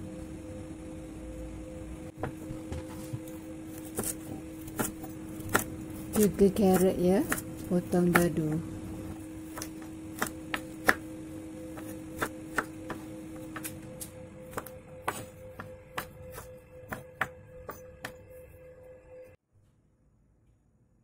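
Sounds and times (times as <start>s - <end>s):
knife chopping on wooden board: 3.7s - 8.6s, 9.4s - 13.8s, 14.5s - 18.2s.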